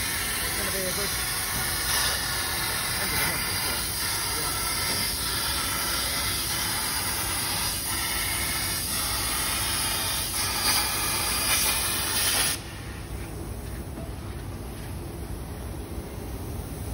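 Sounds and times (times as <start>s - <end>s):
plasma arc hiss: 0.0s - 13.1s.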